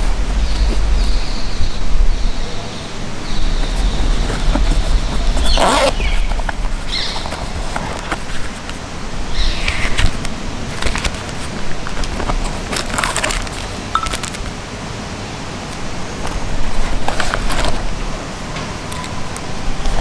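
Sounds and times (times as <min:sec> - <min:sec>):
fabric rustling: 0:03.6 - 0:08.8
zipper rasping and clicking: 0:03.9 - 0:08.3.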